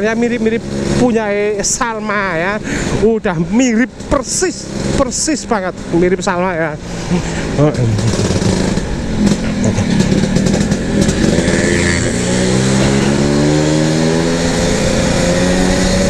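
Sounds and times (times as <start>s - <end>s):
scooter engine revving: 6.8s - 16.0s.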